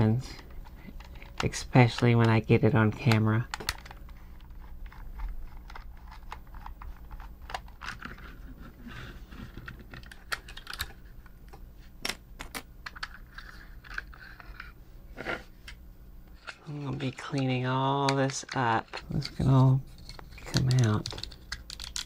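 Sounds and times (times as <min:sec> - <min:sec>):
plastic toy parts clicking: 0:09.9 - 0:10.9, 0:20.0 - 0:22.0.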